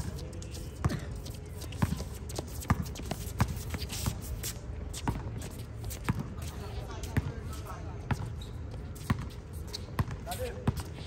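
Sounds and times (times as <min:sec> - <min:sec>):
basketball bouncing on hard court: 0:10.0 - 0:10.8.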